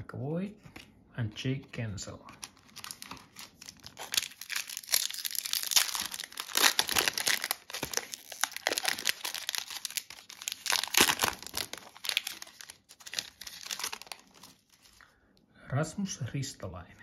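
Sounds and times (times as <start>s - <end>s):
foil wrapper tearing and crinkling: 2.4s - 15.0s.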